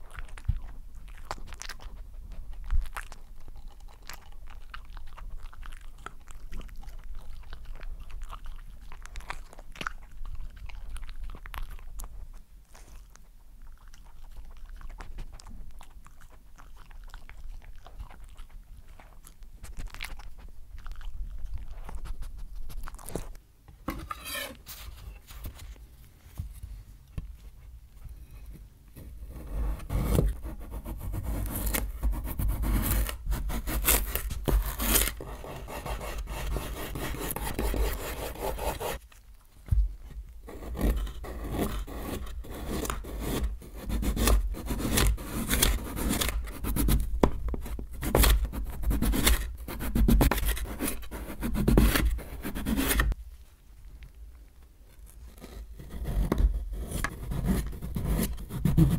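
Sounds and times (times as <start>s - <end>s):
knife slicing on cutting board: 23.9s - 24.8s.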